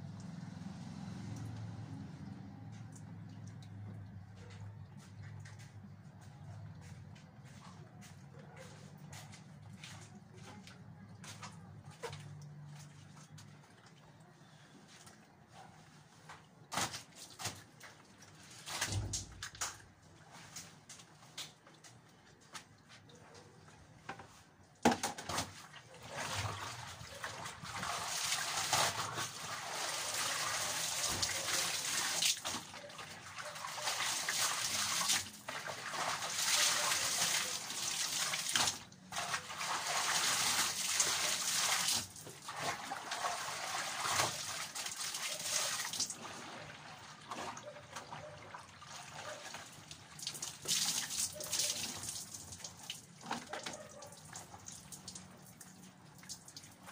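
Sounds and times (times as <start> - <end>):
water splashing in basin: 0.1 - 7.2, 24.9 - 56.9.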